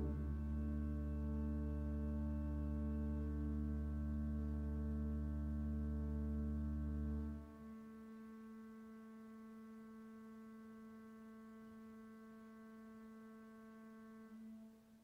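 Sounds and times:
pipe organ chord: 0.0s - 7.9s.

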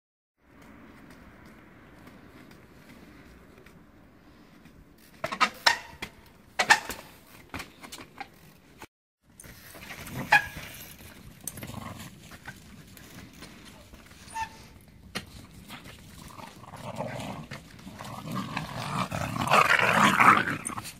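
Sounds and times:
chain and brakes rattling: 9.3s - 20.9s.

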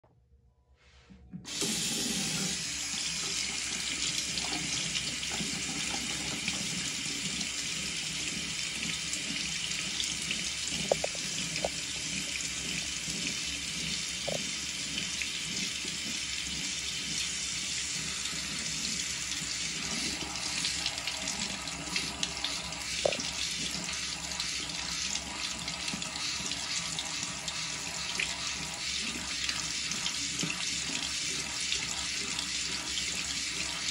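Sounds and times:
faucet water running into basin: 1.5s - 33.9s.

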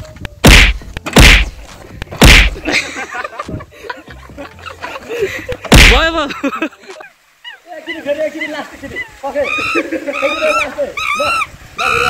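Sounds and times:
sharp whooshing smacks: 0.4s - 2.6s, 5.7s - 6.1s.

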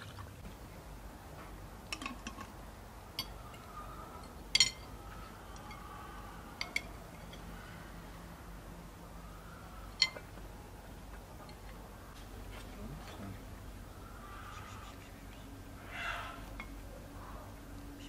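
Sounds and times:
cutlery clinking on dishes: 3.2s - 4.9s.

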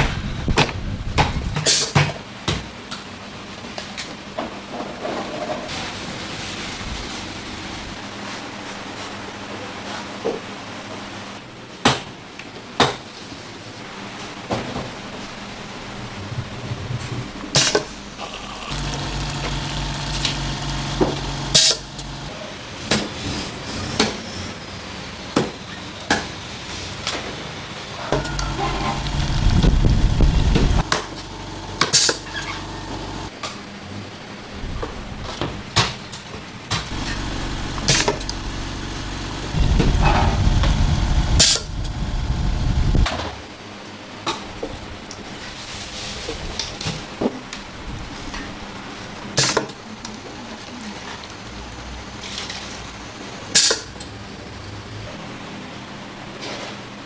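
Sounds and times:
motor-driven machine running: 18.0s - 22.3s, 28.2s - 33.3s, 36.9s - 43.0s.

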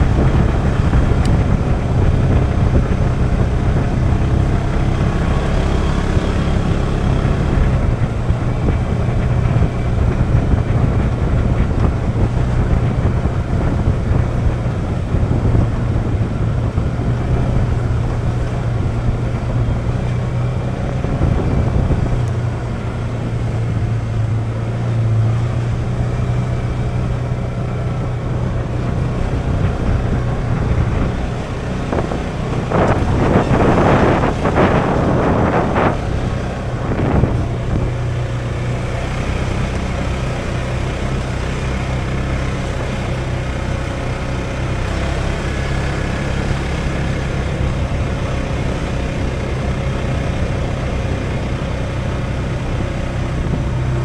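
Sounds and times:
off-road vehicle engine running: 0.0s - 54.0s
wind on microphone: 0.0s - 54.0s
loud rushing noise: 26.1s - 51.3s.

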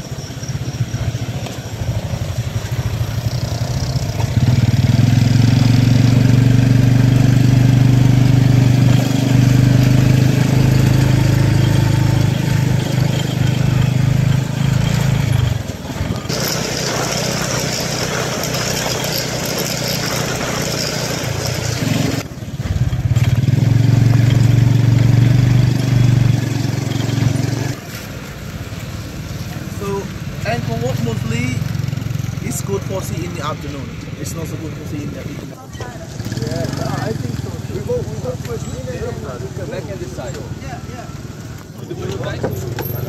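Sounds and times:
motorcycle engine droning: 0.0s - 27.8s.

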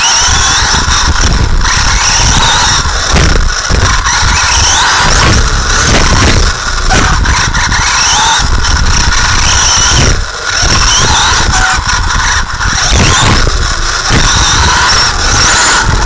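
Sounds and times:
toy car motor whining: 0.0s - 16.0s
tyres rumbling on track: 0.0s - 16.0s.

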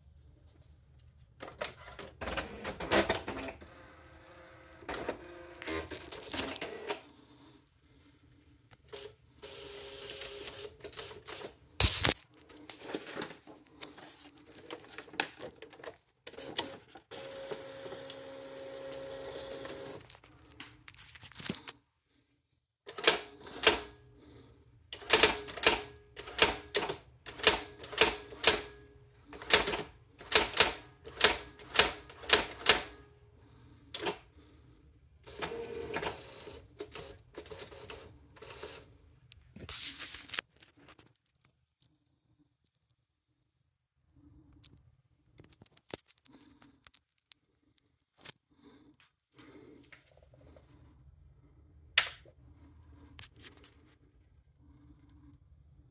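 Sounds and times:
typewriter carriage whir and click: 1.4s - 7.0s, 8.9s - 12.0s, 16.2s - 20.1s, 22.9s - 24.0s, 24.9s - 33.1s, 33.9s - 34.2s, 35.2s - 38.9s
typewriter motors whirring and clicking: 25.0s - 28.8s, 29.4s - 33.0s
typewriter print wheel striking: 29.4s - 32.9s.

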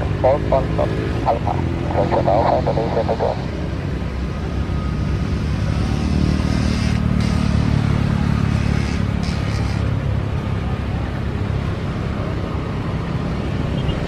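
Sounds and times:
jet engines running: 0.0s - 4.1s.

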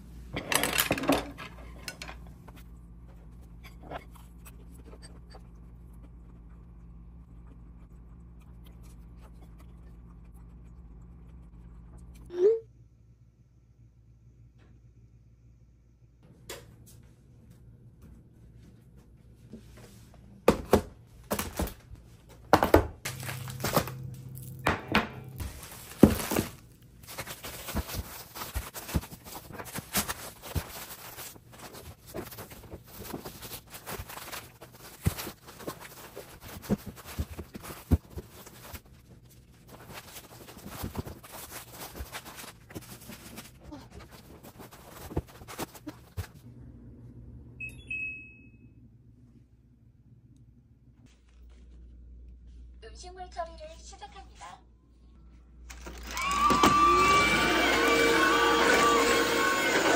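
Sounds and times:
foil bag crackling: 23.1s - 24.6s, 25.4s - 45.9s
air conditioner beep: 47.5s - 49.0s.

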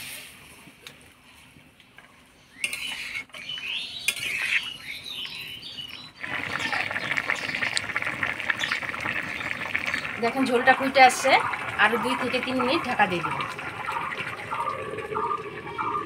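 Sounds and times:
metal utensil scraping pot: 2.6s - 4.8s
bubbling hiss of boiling gravy: 2.6s - 16.0s.

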